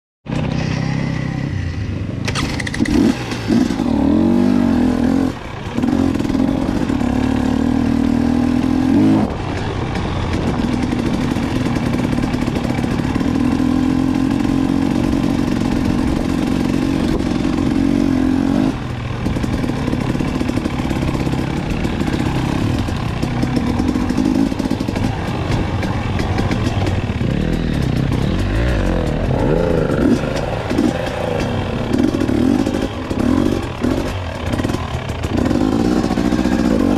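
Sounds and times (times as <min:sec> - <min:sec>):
dirt bike engines revving: 0:00.3 - 0:36.9.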